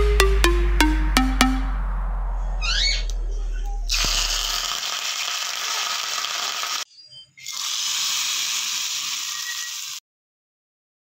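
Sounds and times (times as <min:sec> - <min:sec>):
hot oil sizzling in pan: 0:04.0 - 0:06.8, 0:07.5 - 0:10.0.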